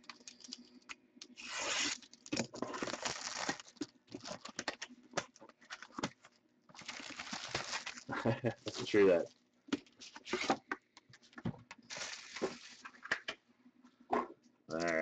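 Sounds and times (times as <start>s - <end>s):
plastic wrap crinkling: 0.0s - 9.4s, 11.8s - 13.0s
blade tearing plastic wrap: 1.3s - 4.7s, 6.8s - 8.1s.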